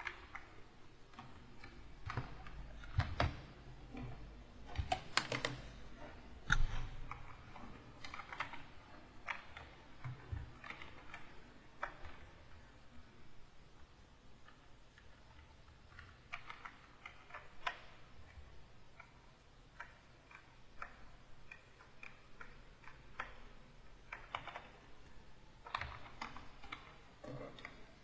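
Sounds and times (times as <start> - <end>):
computer keys clicking: 0.0 - 5.7, 6.5 - 13.1, 14.4 - 28.0.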